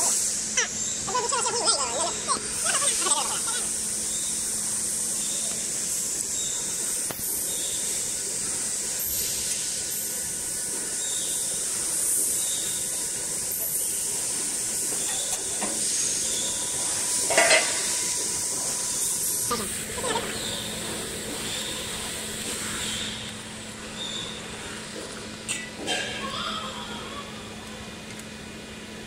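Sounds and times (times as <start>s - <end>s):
workshop background hiss: 0.0s - 29.0s.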